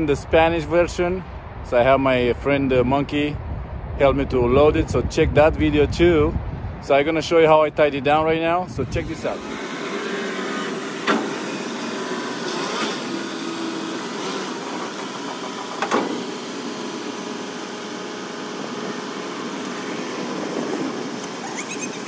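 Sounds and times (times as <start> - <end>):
heavy diesel engine running: 9.2 - 22.0.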